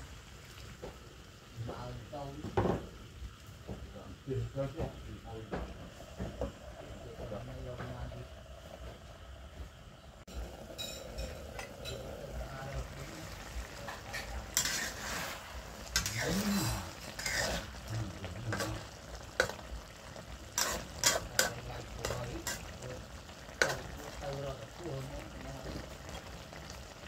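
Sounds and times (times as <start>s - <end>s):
curry cooking in wok: 0.0s - 27.0s
metal spatula scraping wok: 13.6s - 18.8s, 20.5s - 22.8s.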